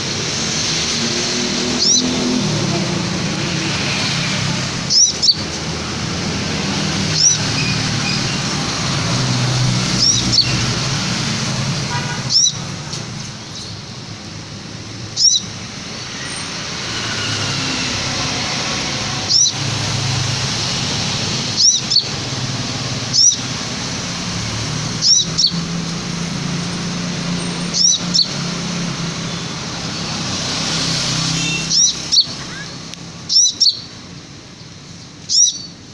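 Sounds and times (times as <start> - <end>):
traffic noise: 0.0 - 35.9
bird chirping: 1.6 - 2.4, 4.8 - 5.6, 6.8 - 10.8, 11.8 - 13.9, 15.0 - 16.9, 19.2 - 19.8, 21.4 - 23.6, 24.8 - 34.0, 34.6 - 35.8.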